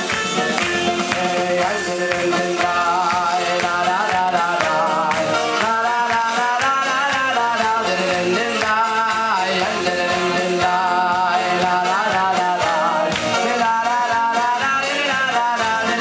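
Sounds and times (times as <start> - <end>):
steady percussion beat: 0.0 - 16.0
man singing slow melody: 0.8 - 16.0.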